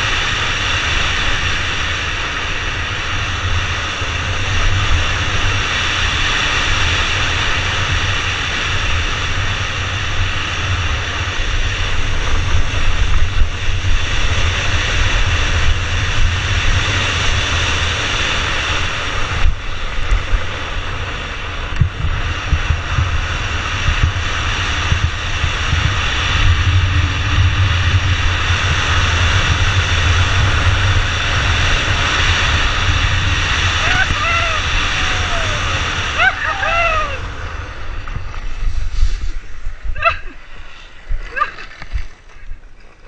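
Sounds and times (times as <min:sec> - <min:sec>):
wheels rolling on asphalt: 0:00.0 - 0:43.0
wind buffeting microphone: 0:00.0 - 0:43.0.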